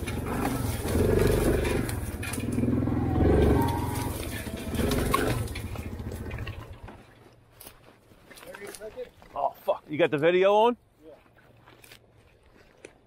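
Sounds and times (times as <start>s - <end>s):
atv engine running: 0.0s - 7.4s.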